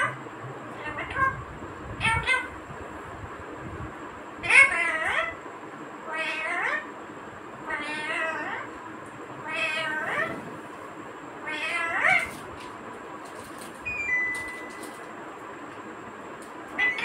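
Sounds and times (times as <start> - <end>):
cat meowing: 9.4 - 10.5, 11.5 - 12.4
faint high tone: 13.9 - 15.0.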